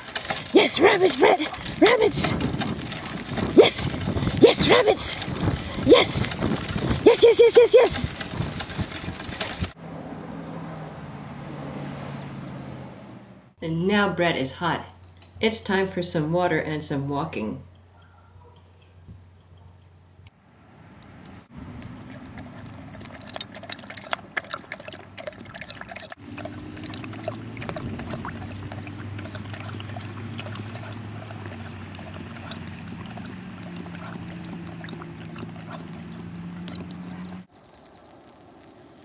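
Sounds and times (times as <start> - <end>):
dog lapping water: 0.0 - 9.8, 21.7 - 38.7.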